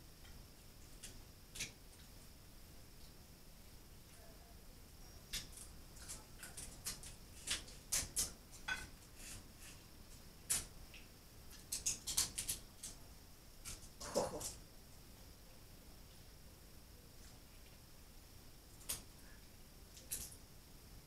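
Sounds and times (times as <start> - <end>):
crab shells cracking: 11.5 - 13.0.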